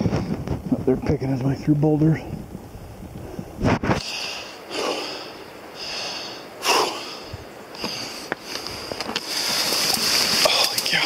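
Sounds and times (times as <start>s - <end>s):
heavy rhythmic breathing: 3.2s - 11.0s.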